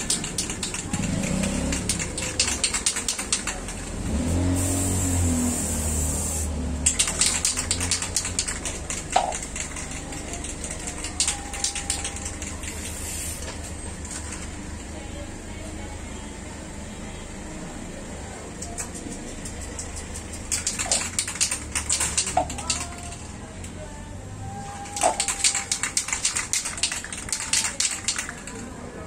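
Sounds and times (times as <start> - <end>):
spray can ball rattling: 0.0 - 14.6, 18.6 - 23.4, 24.8 - 28.8
spray hiss: 4.4 - 6.5.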